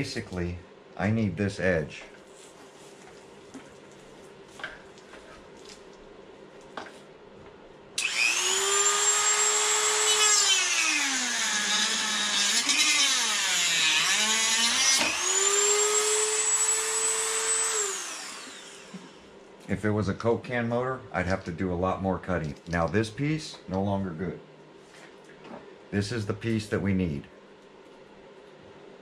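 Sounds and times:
rotary tool cutting plastic: 8.0s - 19.2s.

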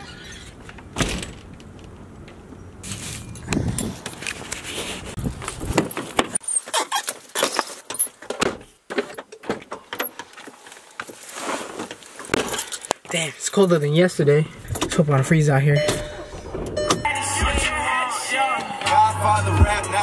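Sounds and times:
low rumbling thumps: 19.4s - 20.0s.

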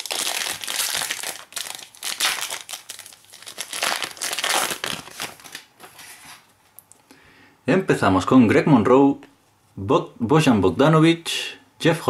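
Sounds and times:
foil wrapper crinkling: 0.0s - 6.4s.

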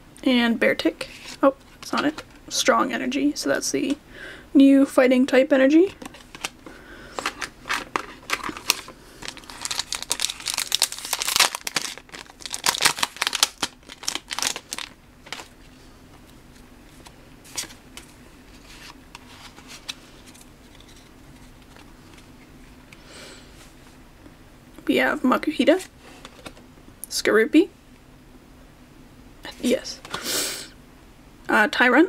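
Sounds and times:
card pack wrapper crinkling: 6.0s - 6.6s, 7.2s - 15.6s.

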